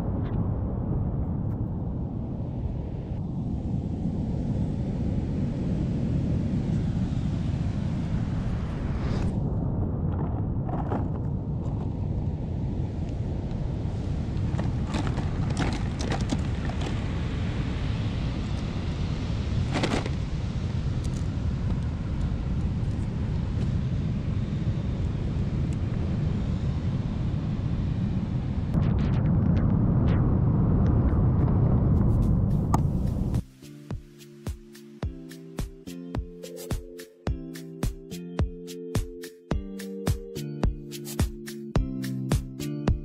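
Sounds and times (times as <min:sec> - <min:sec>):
wind buffeting microphone: 0:00.0 - 0:33.4.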